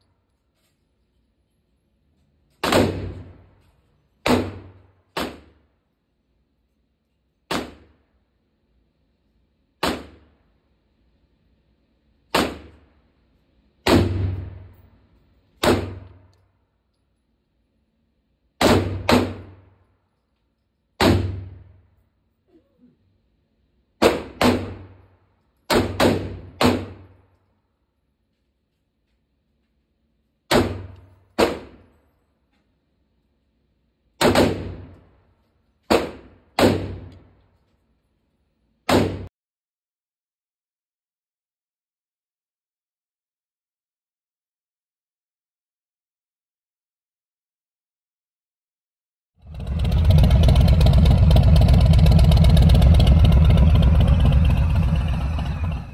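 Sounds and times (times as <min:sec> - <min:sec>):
gunshots echoing indoors: 0:02.5 - 0:06.0, 0:07.4 - 0:08.6, 0:09.8 - 0:10.6, 0:12.2 - 0:16.8, 0:18.5 - 0:20.2, 0:20.8 - 0:22.0, 0:23.9 - 0:27.8, 0:30.5 - 0:32.2, 0:34.1 - 0:37.8, 0:38.8 - 0:39.3.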